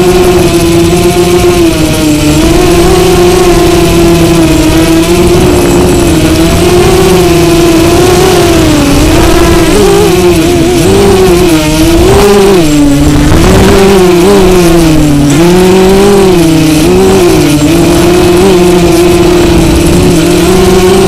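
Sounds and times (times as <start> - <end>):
drone propellers whining: 0.0 - 21.0.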